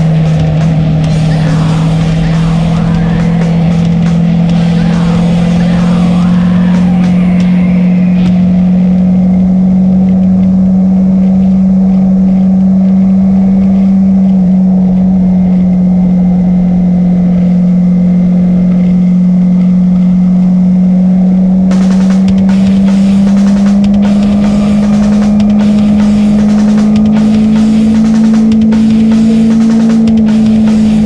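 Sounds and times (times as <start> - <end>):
wind rushing: 0.0 - 9.3
motorcycle engine cruising: 0.0 - 31.0.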